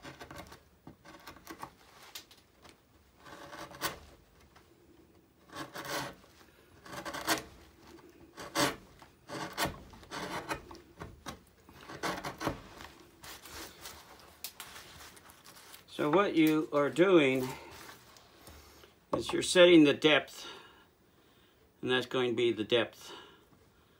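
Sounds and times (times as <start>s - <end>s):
gouge scraping cuts in wood: 0.0s - 1.7s, 3.2s - 4.1s, 5.4s - 6.2s, 6.8s - 11.1s, 11.7s - 12.8s.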